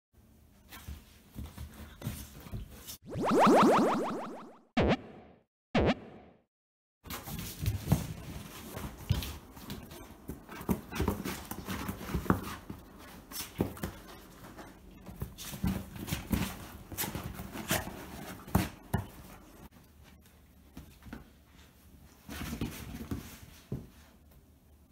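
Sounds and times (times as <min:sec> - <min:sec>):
dogs scuffling on leather: 0:07.3 - 0:18.8.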